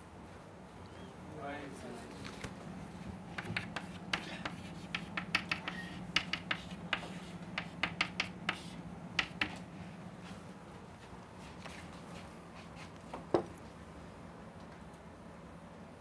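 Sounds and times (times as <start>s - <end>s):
chalk writing on a blackboard: 3.3s - 9.6s.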